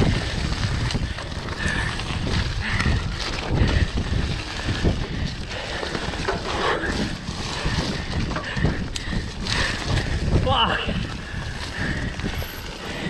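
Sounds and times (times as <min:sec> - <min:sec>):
dirt bike engine rumble: 0:00.0 - 0:13.0
wind buffeting microphone: 0:00.0 - 0:13.0.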